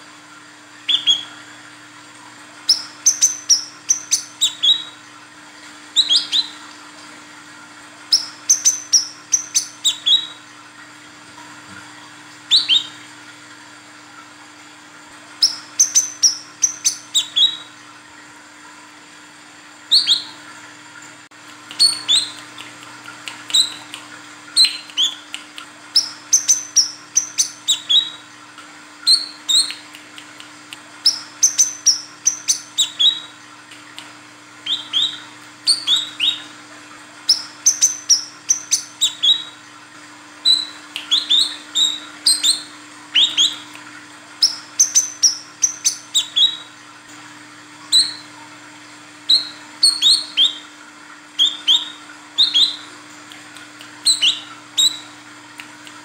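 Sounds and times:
sunbird high chirps: 0.8s - 1.4s, 2.6s - 5.0s, 5.9s - 6.6s, 8.1s - 10.4s, 12.5s - 13.0s, 15.4s - 17.7s, 19.9s - 20.4s, 21.7s - 28.2s, 29.0s - 30.0s, 31.0s - 33.4s, 34.6s - 36.5s, 37.2s - 39.6s, 40.4s - 43.8s, 44.4s - 46.7s, 47.9s - 48.4s, 49.2s - 50.7s, 51.4s - 53.0s, 54.0s - 55.2s.

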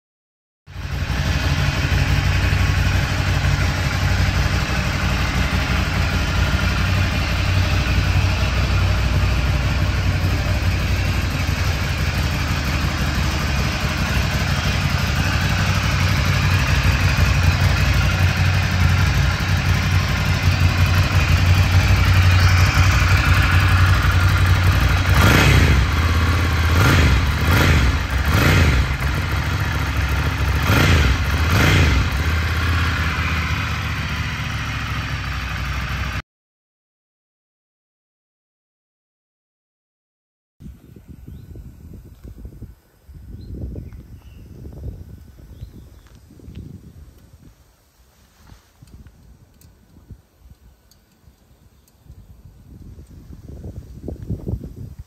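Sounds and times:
motorcycle engine idling: 0.7s - 36.2s
motorcycle throttle blips: 0.8s - 36.2s.

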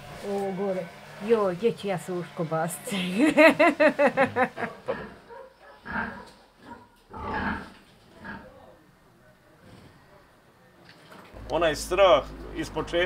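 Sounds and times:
person laughing: 2.9s - 5.1s
pigs grunting: 4.6s - 8.8s.

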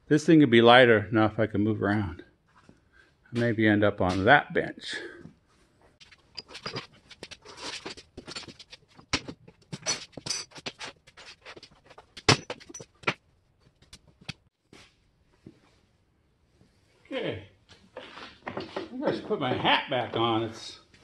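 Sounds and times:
metal tools clinking on workbench: 6.0s - 8.7s, 9.7s - 10.7s.

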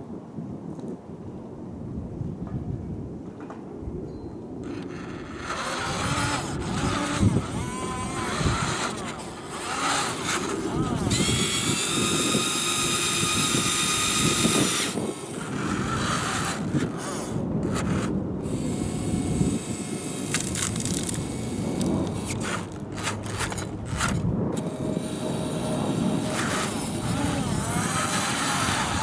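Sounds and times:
high electric motor whine: 4.6s - 29.0s
gravel and stones crunching: 20.2s - 24.5s.

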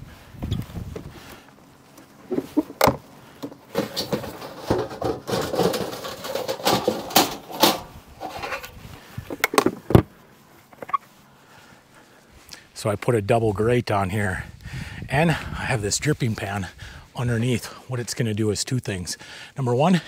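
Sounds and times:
gear rummaging with clicks and knocks: 1.9s - 10.1s.

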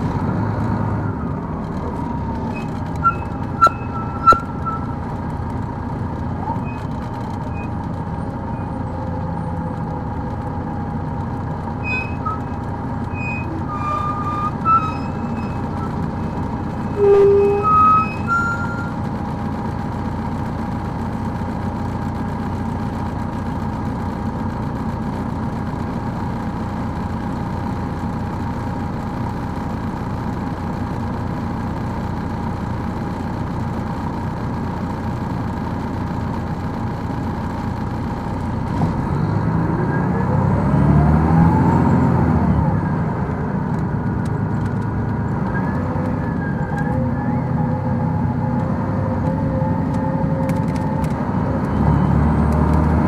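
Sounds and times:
bus engine revving up: 0.0s - 20.0s, 37.8s - 53.0s
bus engine running with whine: 0.0s - 53.0s.

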